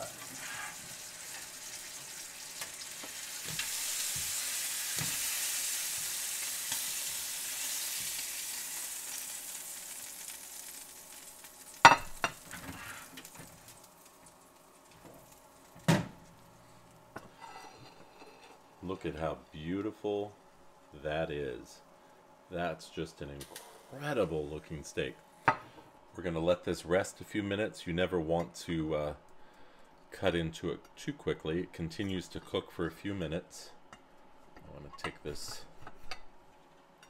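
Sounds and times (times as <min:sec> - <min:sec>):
steak sizzling: 0:00.0 - 0:18.7.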